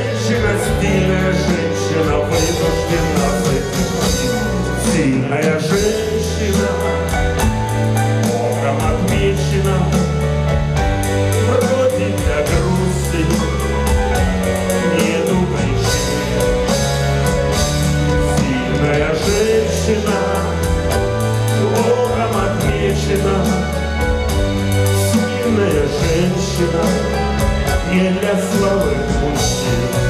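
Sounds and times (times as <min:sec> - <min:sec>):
live band playing: 0:00.0 - 0:30.0
man singing: 0:00.0 - 0:30.0.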